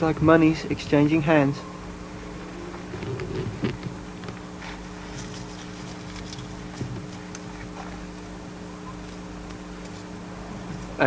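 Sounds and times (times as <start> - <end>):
steady low hum: 0.0 - 11.0
faint clicks and rustles: 2.9 - 8.3.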